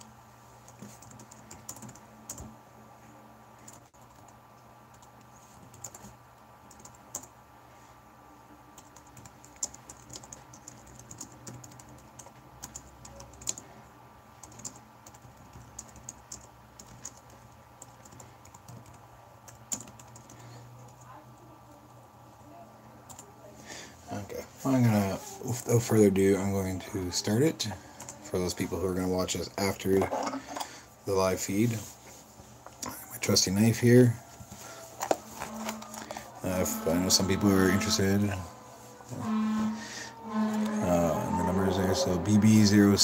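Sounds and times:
low steady hum: 0.0 - 43.0
typing on a keyboard: 0.7 - 2.5, 3.6 - 7.3, 8.8 - 13.6, 14.4 - 21.0.

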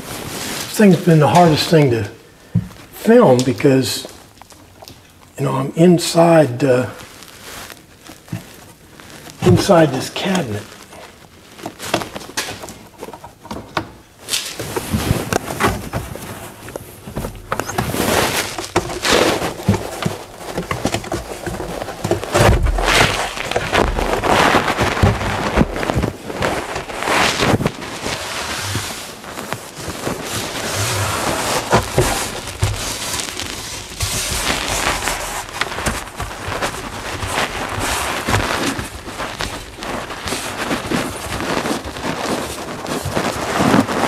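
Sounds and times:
rustling and scraping of cardboard panel: 7.0 - 44.0.

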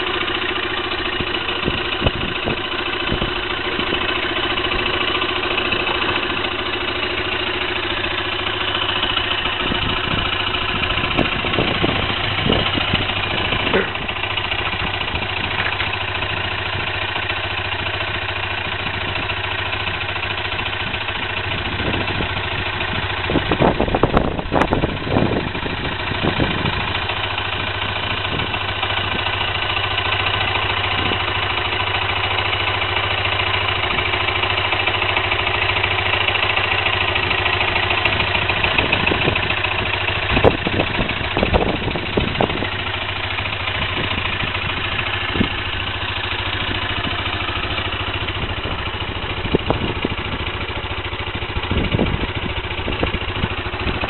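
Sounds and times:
engine knocks: 0.0 - 54.0
motorbike engine idling: 0.0 - 54.0.

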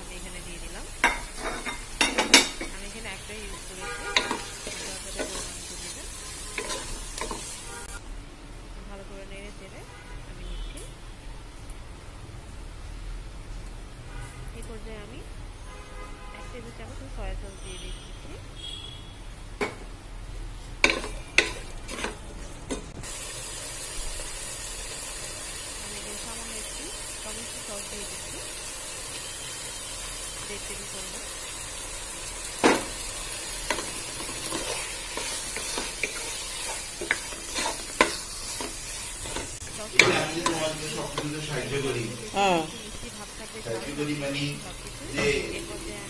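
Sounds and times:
noodles sizzling in a hot pan: 0.0 - 8.0, 23.0 - 46.0
wooden spoon scraping frying pan: 1.1 - 2.7, 3.5 - 8.0, 20.8 - 23.0, 32.6 - 42.0.

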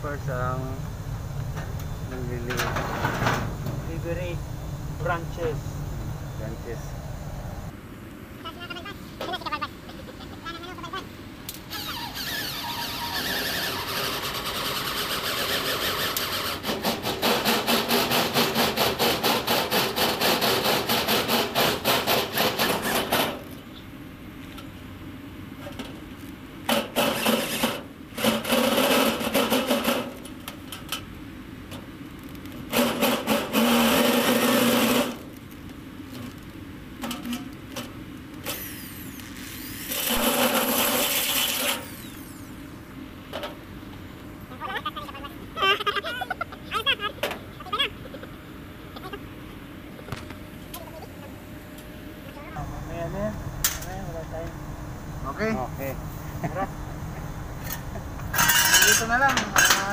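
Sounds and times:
electric drill boring into metal: 11.7 - 23.1, 27.0 - 30.0, 32.7 - 35.2, 38.4 - 42.8.

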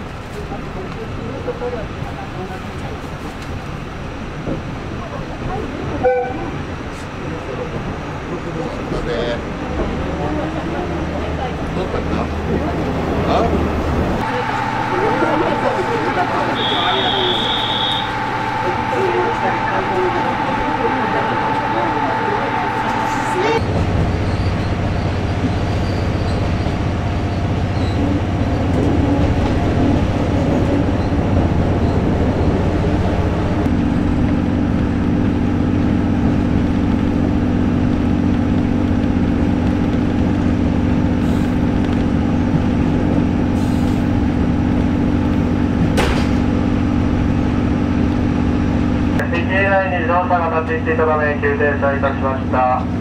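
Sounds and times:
train rumble from aboard: 0.0 - 53.0
steady low drone: 12.5 - 49.5.

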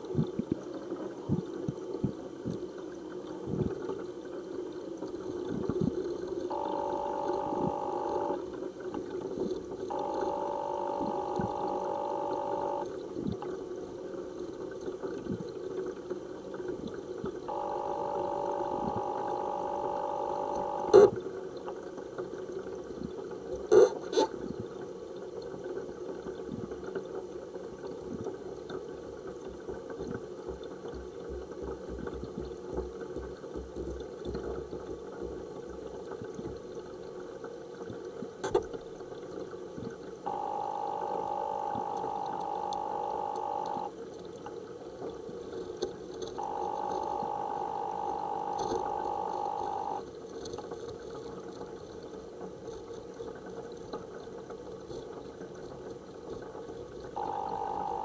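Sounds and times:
steady hum: 6.5 - 8.5, 9.9 - 12.9, 17.5 - 21.2, 40.3 - 43.9, 46.4 - 50.0, 57.2 - 58.0.

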